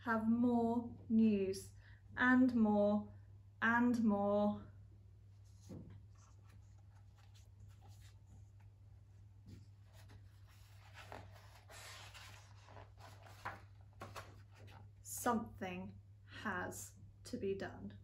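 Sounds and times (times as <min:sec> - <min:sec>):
page turning: 0:05.4 - 0:08.7, 0:09.5 - 0:14.9
paper pages rustling: 0:05.4 - 0:08.8, 0:09.4 - 0:15.0.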